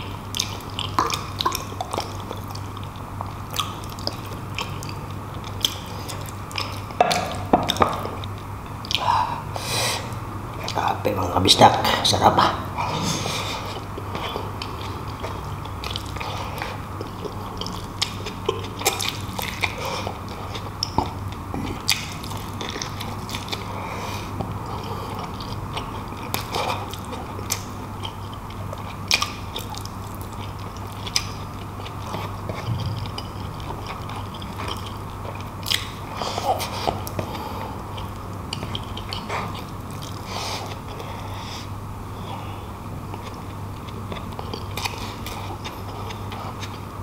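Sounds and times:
man chewing food: 0:00.0 - 0:10.9, 0:12.6 - 0:47.0
lip smacks and mouth clicks: 0:00.3 - 0:09.0, 0:32.1 - 0:36.0.

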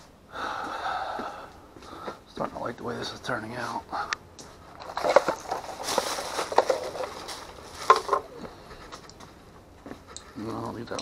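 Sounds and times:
plastic packaging rustling: 0:04.6 - 0:09.2.

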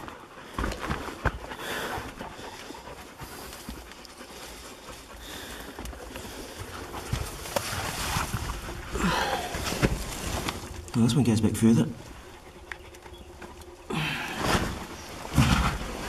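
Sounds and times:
dog panting: 0:00.0 - 0:09.0, 0:12.0 - 0:13.9.

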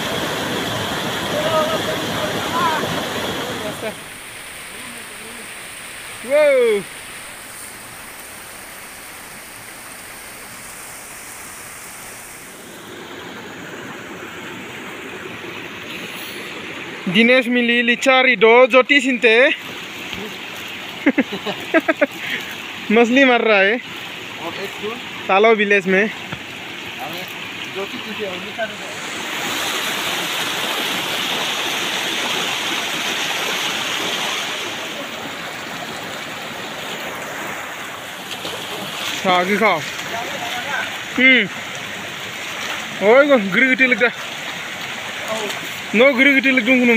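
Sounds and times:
stream and waterfall rushing: 0:00.0 - 0:46.9.

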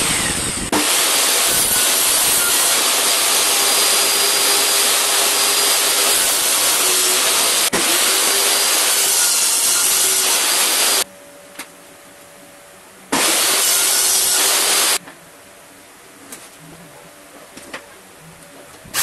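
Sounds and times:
table saw cutting board: 0:00.0 - 0:11.0, 0:13.2 - 0:15.0.

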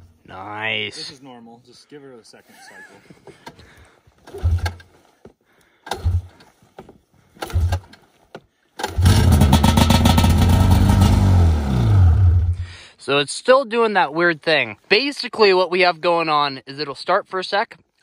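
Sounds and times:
snowmobile engine starting: 0:04.2 - 0:04.9, 0:05.9 - 0:06.5, 0:07.4 - 0:08.0, 0:08.8 - 0:12.8.

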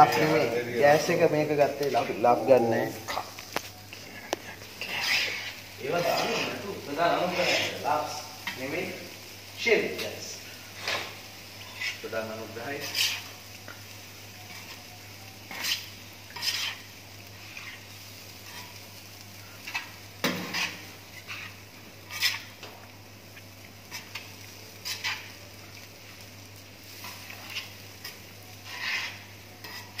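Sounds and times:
light sizzle: 0:00.0 - 0:30.0
metal blade scraping on griddle: 0:04.8 - 0:08.7, 0:10.8 - 0:13.4, 0:15.5 - 0:18.8, 0:19.6 - 0:22.8, 0:23.9 - 0:25.5, 0:26.8 - 0:30.0.

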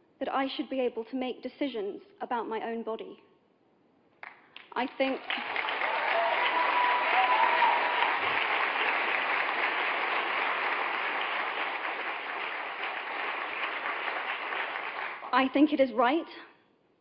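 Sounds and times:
audience applauding: 0:05.0 - 0:15.3.

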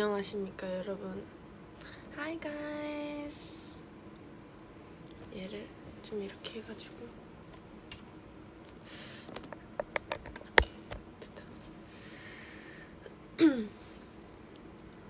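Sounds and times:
breathy exhale: 0:11.9 - 0:13.0.

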